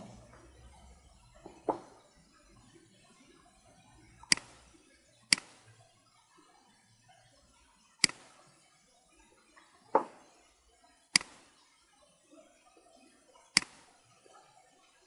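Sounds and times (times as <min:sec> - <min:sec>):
computer mouse clicks: 0:04.2 - 0:05.8, 0:08.0 - 0:08.4, 0:11.1 - 0:11.6, 0:13.6 - 0:14.0.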